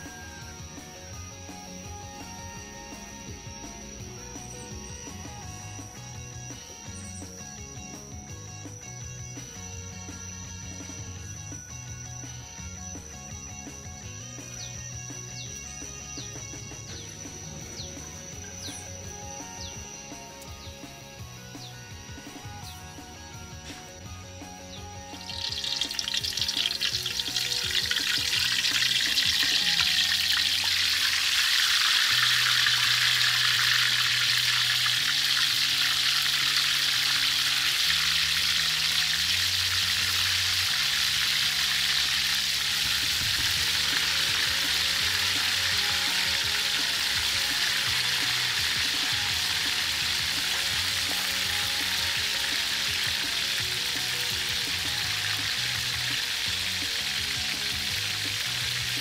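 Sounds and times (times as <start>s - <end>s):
soft background music: 0.0s - 59.0s
meat deep-frying sizzle: 24.1s - 59.0s.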